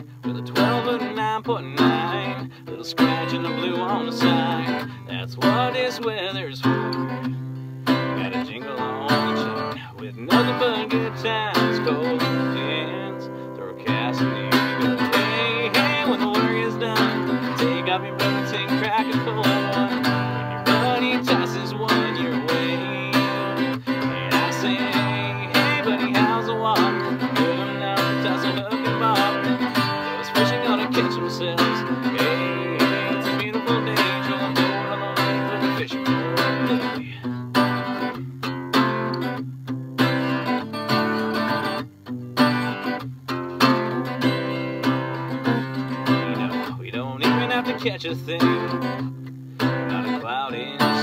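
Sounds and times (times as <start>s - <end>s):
acoustic guitar strumming: 0.0s - 51.0s.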